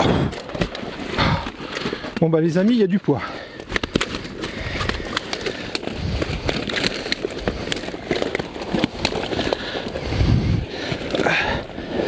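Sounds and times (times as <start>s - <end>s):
wind rumbling on microphone: 10.0s - 10.9s.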